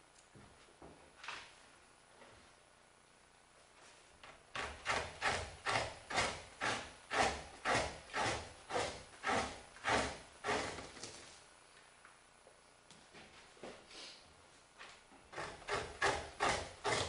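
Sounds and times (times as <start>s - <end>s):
knife scraping hide: 4.6s - 11.0s, 15.4s - 17.0s.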